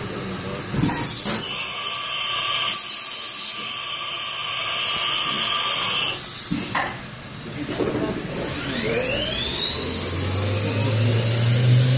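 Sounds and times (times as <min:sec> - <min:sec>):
thin machine whine: 0:07.2 - 0:11.9.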